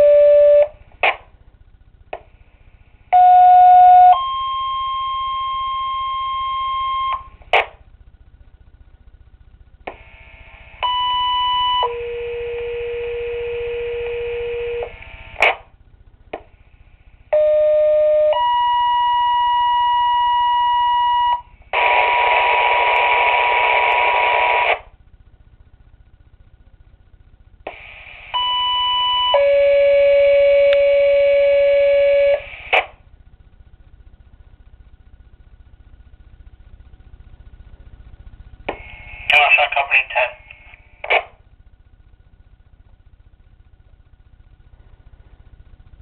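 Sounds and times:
two-tone pager tones: 0.0 - 0.7, 3.2 - 7.4, 10.8 - 15.0, 17.4 - 21.4
radio static crashes: 21.7 - 24.9, 38.7 - 41.4.

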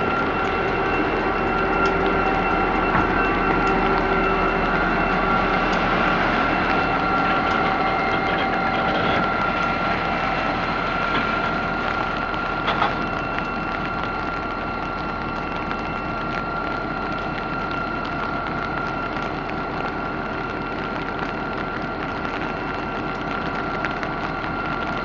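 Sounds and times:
diesel locomotives rumbling past: 0.0 - 15.1
high whine: 0.0 - 25.0.

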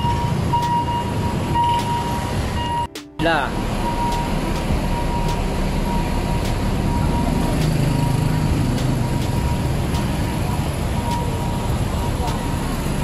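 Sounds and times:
engine passing close: 0.0 - 13.0
hum of city traffic: 0.0 - 13.0.

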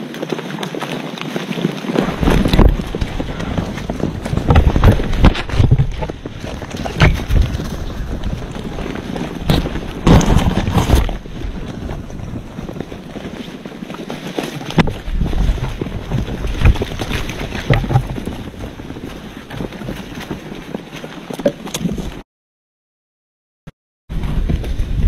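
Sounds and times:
knocks and rustles: 1.9 - 22.2
wind buffeting the microphone: 2.0 - 13.4, 14.7 - 20.4, 24.1 - 25.0.

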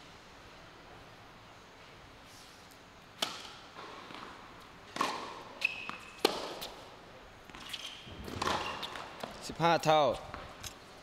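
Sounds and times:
tennis ball struck by racket: 3.2 - 6.8, 7.5 - 9.4
shoe squeak on court: 5.0 - 6.8, 7.5 - 9.2.

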